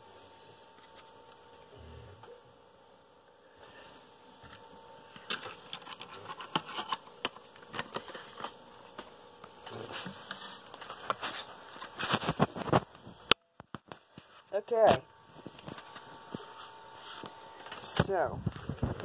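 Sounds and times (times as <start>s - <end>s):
card boxes tapping and scraping: 4.5s - 12.9s.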